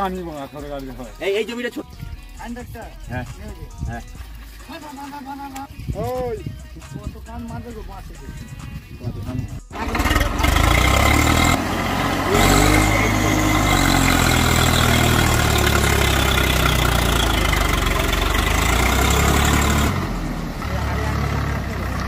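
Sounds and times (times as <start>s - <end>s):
tractor diesel engine revving: 9.7s - 22.0s
tyres churning mud: 9.7s - 22.0s.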